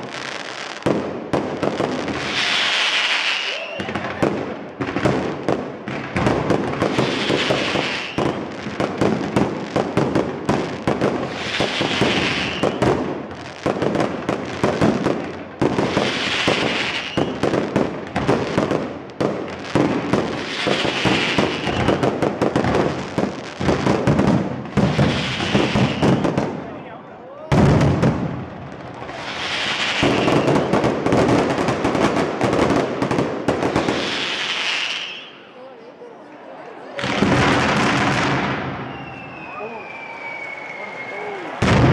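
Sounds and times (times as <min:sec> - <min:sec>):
high hissing firework flurry: 0:02.2 - 0:03.8, 0:06.9 - 0:08.2, 0:29.1 - 0:30.5, 0:33.8 - 0:35.4.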